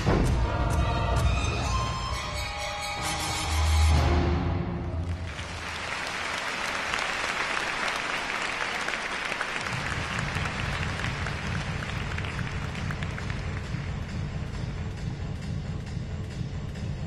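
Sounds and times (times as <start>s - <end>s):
music: 0.0s - 5.6s, 9.6s - 17.0s
crowd applauding: 5.0s - 14.1s.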